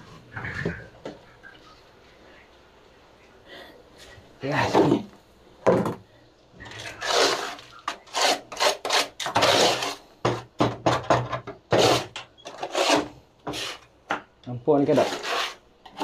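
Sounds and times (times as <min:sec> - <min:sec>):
metal scraper scraping floor: 0:06.6 - 0:13.9, 0:14.9 - 0:16.0.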